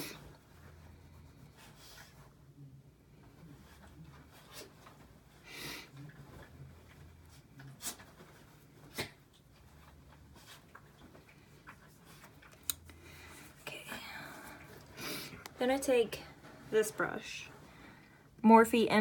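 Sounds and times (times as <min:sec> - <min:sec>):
soft rustles of skin and sleeves: 0:03.1 - 0:18.1.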